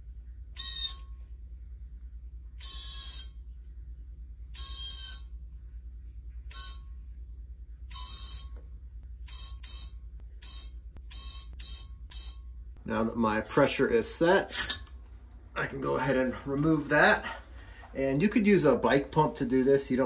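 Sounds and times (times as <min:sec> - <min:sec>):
low steady hum: 0:00.0 - 0:20.0
compressed air hissing: 0:02.6 - 0:03.4, 0:06.5 - 0:06.8, 0:07.9 - 0:08.5, 0:09.2 - 0:12.4.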